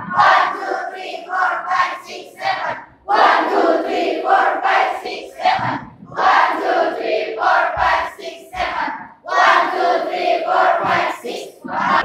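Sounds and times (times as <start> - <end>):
crowd chanting and shouting: 0.0 - 12.0
low thumps: 5.4 - 9.6, 10.5 - 12.0.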